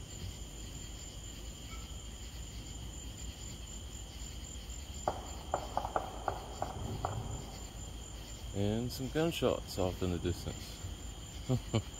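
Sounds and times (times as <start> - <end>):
night insects chirring: 0.0 - 11.9
distant gunshots: 5.0 - 7.9.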